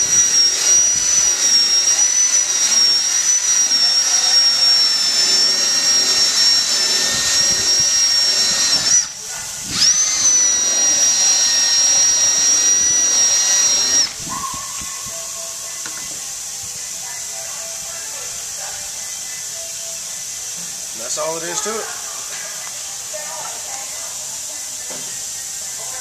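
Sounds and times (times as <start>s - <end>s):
polishing pad hissing on plastic: 0.0s - 17.2s
drill motor whine: 0.0s - 26.0s.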